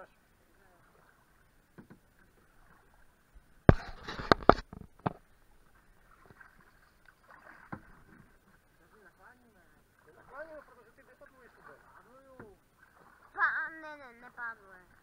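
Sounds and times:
faint water sounds: 0.0 - 15.0
paddle knocks on canoe: 1.7 - 2.1, 3.7 - 5.2, 7.4 - 8.3, 12.3 - 12.6.

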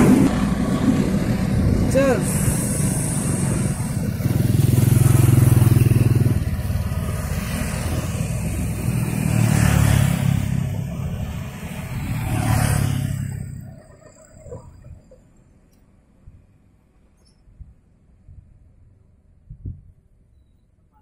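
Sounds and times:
passenger train rumble: 0.0 - 16.7
vehicles passing close: 0.0 - 17.2.

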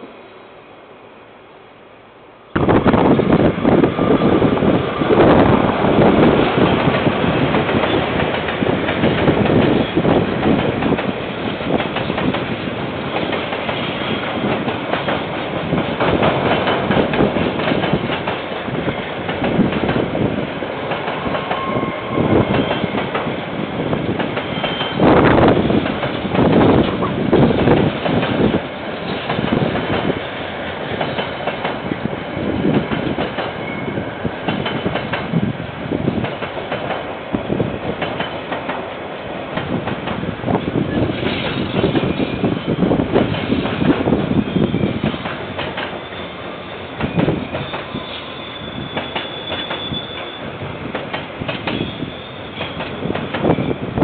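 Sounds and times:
freight train wheels on rails: 2.4 - 54.0
faint wheel squeals: 45.9 - 50.6, 51.7 - 53.8.

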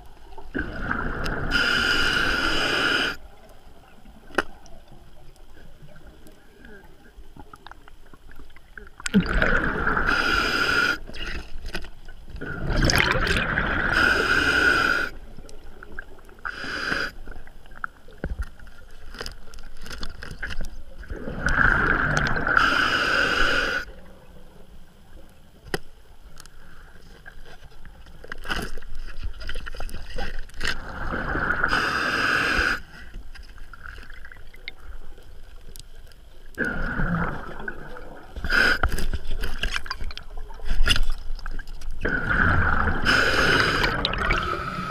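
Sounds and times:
exhaled bubbles underwater: 0.4 - 1.7, 7.4 - 11.3, 12.4 - 16.5, 21.0 - 22.7, 30.8 - 31.8, 36.6 - 38.5, 41.4 - 44.9
diver inhaling through regulator: 0.9 - 3.2, 9.5 - 11.2, 13.7 - 15.2, 16.4 - 17.2, 21.6 - 23.9, 30.8 - 33.1, 38.4 - 39.1, 42.2 - 44.9.

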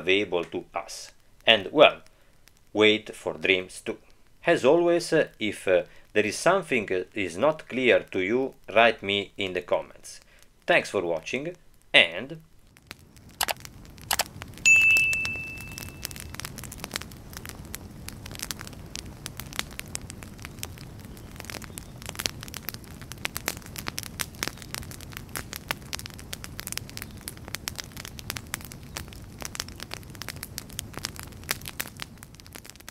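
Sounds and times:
fire crackling: 0.0 - 32.9
bright chime: 14.7 - 16.3.

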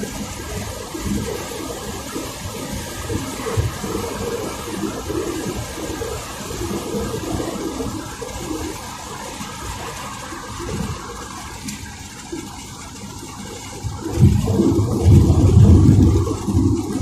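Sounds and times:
car road and wind noise: 0.0 - 17.0
low rumble: 14.0 - 17.0.

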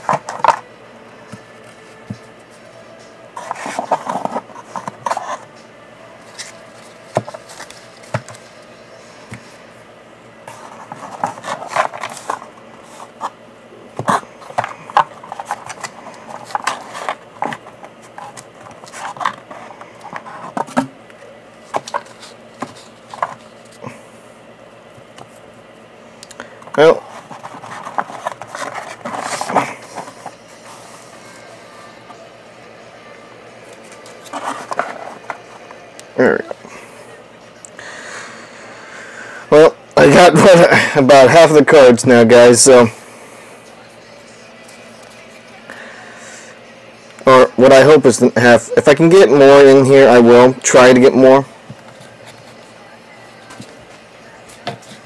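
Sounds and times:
cards rustling and scraping: 0.0 - 24.2, 24.8 - 32.4, 33.4 - 36.8, 44.2 - 45.6, 50.8 - 55.0.

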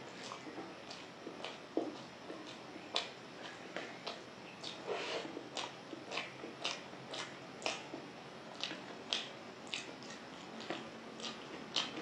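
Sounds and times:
person chewing food: 0.0 - 12.0.

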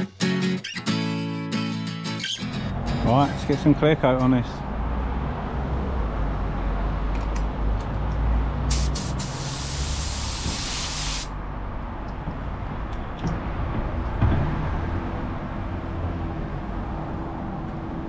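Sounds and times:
spray gun hiss: 8.7 - 11.3.

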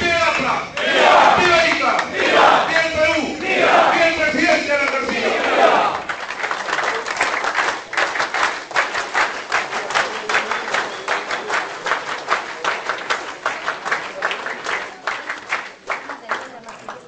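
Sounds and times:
crowd clapping: 0.0 - 17.0.

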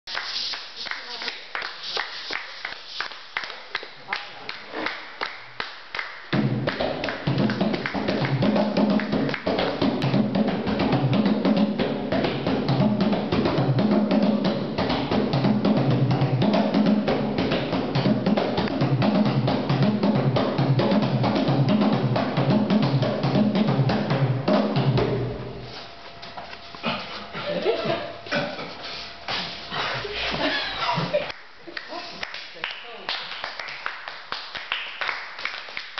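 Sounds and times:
fast hand drumming: 6.3 - 25.3.

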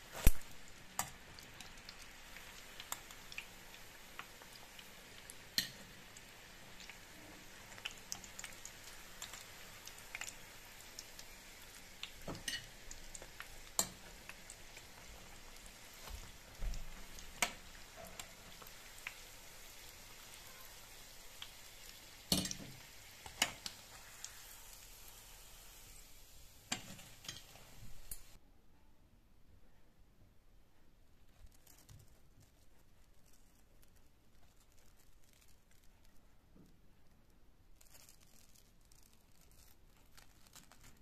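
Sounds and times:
deep-frying oil sizzling and popping: 0.0 - 28.4.

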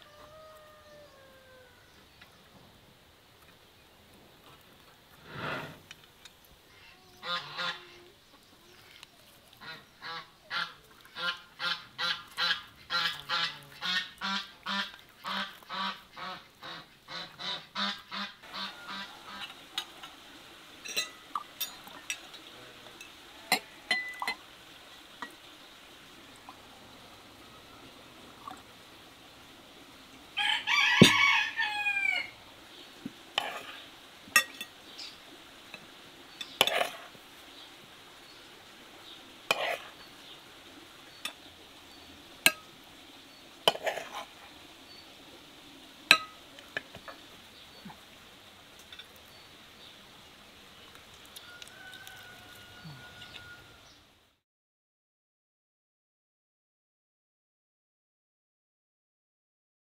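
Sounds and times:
farmyard fowl calling: 6.8 - 8.1, 9.6 - 19.6, 30.4 - 32.4, 51.4 - 53.9
cutlery and dishes clinking: 20.8 - 22.3.

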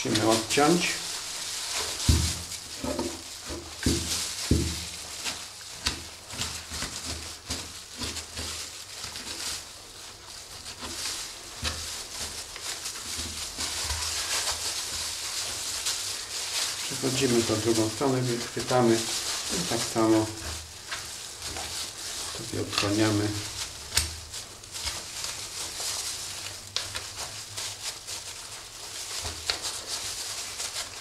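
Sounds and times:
wet handling of meat: 0.0 - 31.0
soft thumps: 2.0 - 5.0.

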